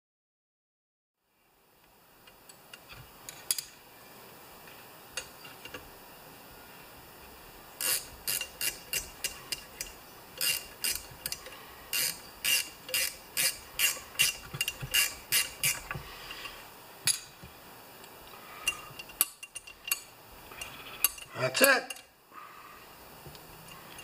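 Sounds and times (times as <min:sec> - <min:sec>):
ratchet wrench clicking: 0:07.8 - 0:16.0.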